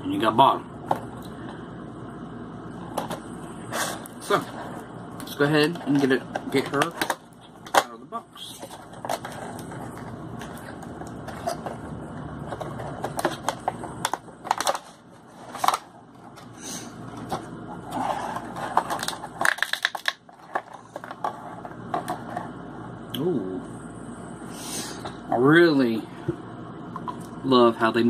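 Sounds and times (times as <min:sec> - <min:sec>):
plastic and cardboard crinkling: 0:02.9 - 0:16.5, 0:17.1 - 0:22.5.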